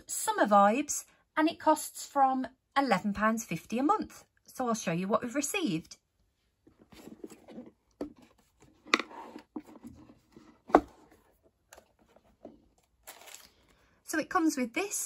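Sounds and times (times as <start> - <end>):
cardboard box knocks and scrapes: 6.9 - 11.3.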